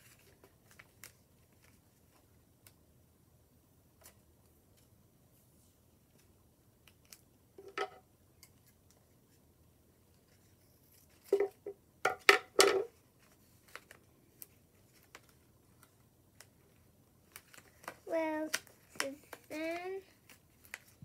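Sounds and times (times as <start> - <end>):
tape crackling: 0.0 - 2.8, 12.7 - 21.0.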